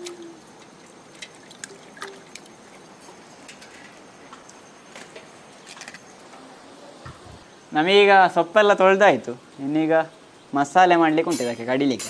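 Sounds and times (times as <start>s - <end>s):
dove cooing: 0.0s - 0.8s, 1.6s - 2.4s
leaves splashing in water: 0.0s - 3.5s
background hiss: 0.0s - 12.0s.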